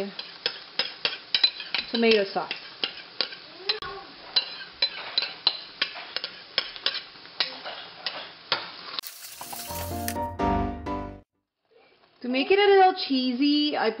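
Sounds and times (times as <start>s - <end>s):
spatula scraping and tapping bowl: 4.4s - 10.2s.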